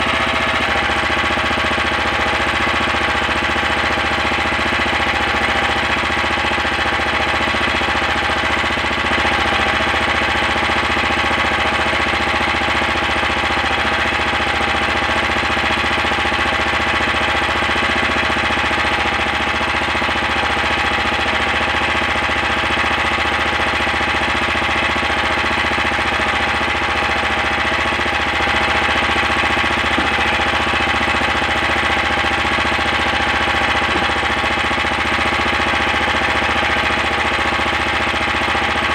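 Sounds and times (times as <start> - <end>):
boat engine running: 25.4 - 38.9.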